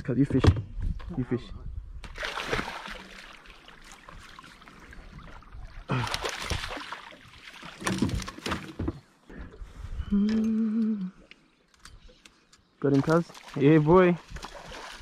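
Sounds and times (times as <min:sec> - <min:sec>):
fish splashing in water: 0:02.1 - 0:04.7, 0:05.3 - 0:08.6
person humming: 0:10.0 - 0:11.3.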